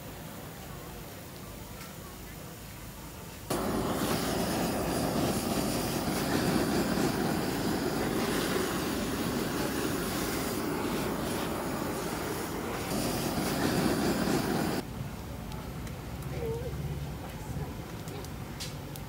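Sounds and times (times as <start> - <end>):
blowtorches hissing: 3.5 - 14.8.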